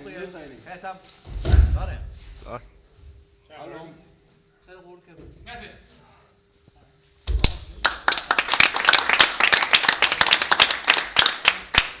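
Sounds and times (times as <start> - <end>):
people clapping: 7.4 - 12.0.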